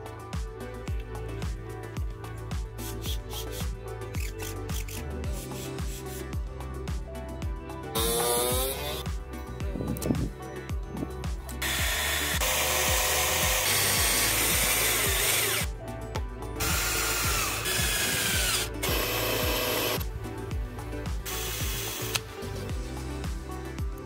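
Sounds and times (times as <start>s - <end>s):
background music: 0.0s - 24.0s
cordless drill boring acrylic: 11.6s - 15.7s, 16.6s - 20.0s, 21.3s - 22.3s.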